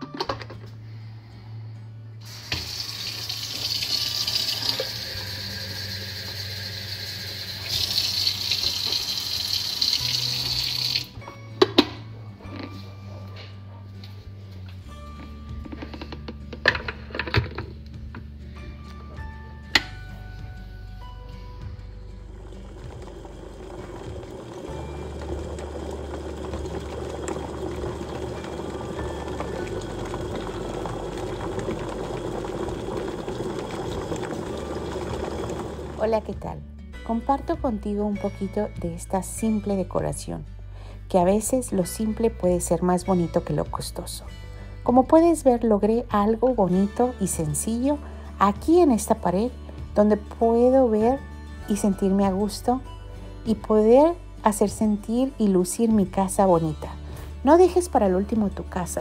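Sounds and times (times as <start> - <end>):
electric kettle rumbling: 2.2 - 11.1, 21.6 - 36.5
faucet water splashing in sink: 2.3 - 11.2, 22.7 - 36.0.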